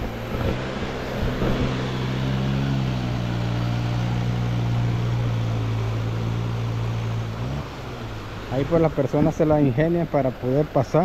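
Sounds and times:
motorcycle engine low revs: 0.0s - 9.7s
rushing water: 0.0s - 11.0s.

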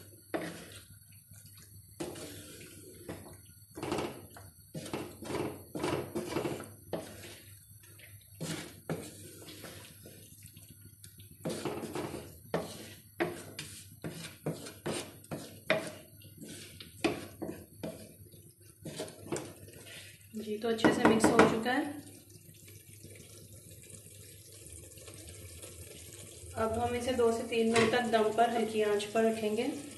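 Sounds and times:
wooden spatula scraping a pot: 0.0s - 1.0s, 2.0s - 20.3s.

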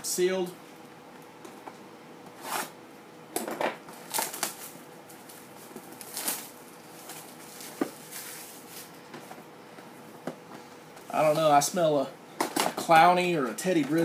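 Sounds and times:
shrink-wrap crinkling: 3.9s - 9.0s.

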